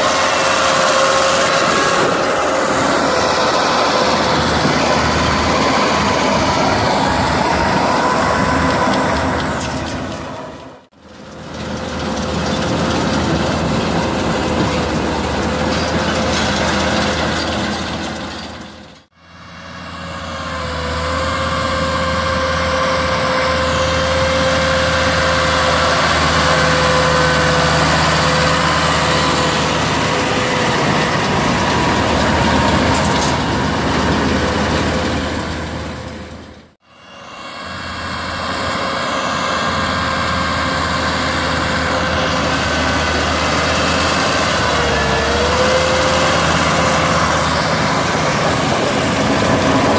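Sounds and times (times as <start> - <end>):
diesel tractor engine under load: 0.0 - 49.9
baler whine: 19.2 - 49.9.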